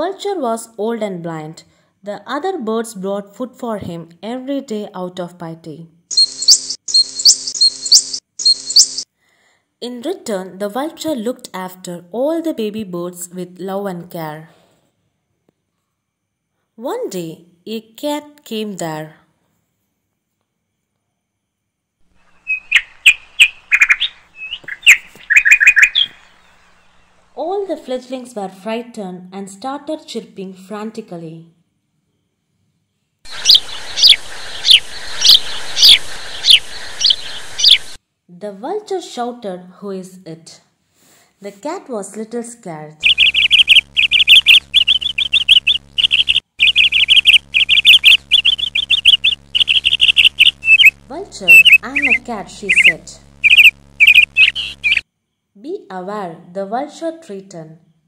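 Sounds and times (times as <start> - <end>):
young birds chirping: 6.1 - 9.0, 22.2 - 27.2, 33.3 - 38.0, 43.0 - 55.0.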